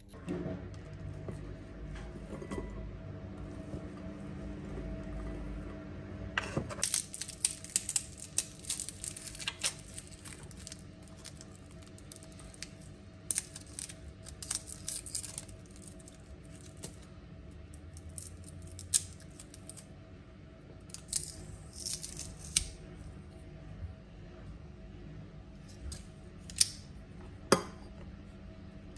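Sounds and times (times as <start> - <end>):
garlic skins crackling: 6.8 - 17.0, 18.0 - 19.8.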